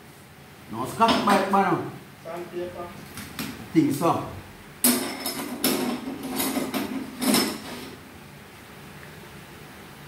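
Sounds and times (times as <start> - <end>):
metal gears clanking on workbench: 4.8 - 8.0.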